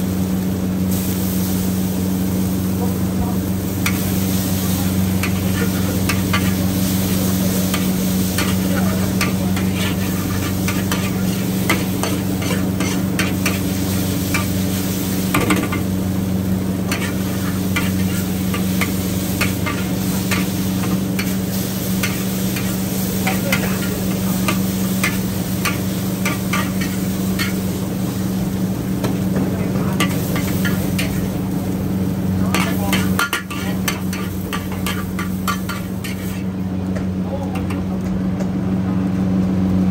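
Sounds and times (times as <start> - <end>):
hot pan sizzling: 0.0 - 38.0
steady low hum: 0.0 - 39.9
metal spatula scraping a wok: 7.7 - 13.8, 16.9 - 21.4, 32.6 - 36.5.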